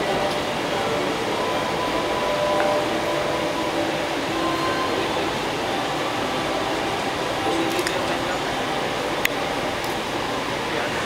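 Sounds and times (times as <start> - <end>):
crowd talking indistinctly: 0.0 - 11.0.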